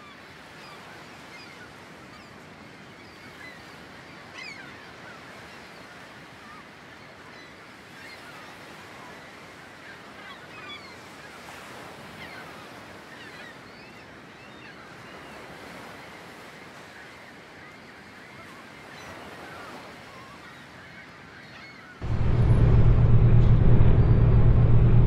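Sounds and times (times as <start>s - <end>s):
distant surf: 22.0s - 25.0s.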